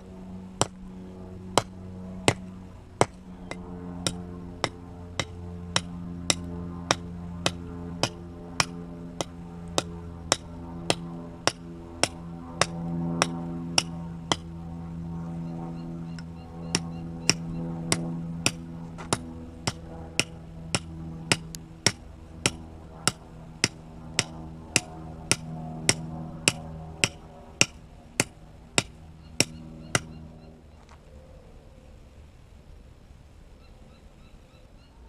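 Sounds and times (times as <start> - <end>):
low steady drone: 0.0 - 35.0.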